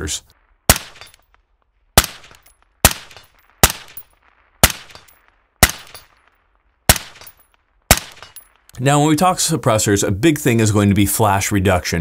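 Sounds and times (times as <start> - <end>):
suppressed rifle shots: 0.6 - 1.4, 2.0 - 8.7.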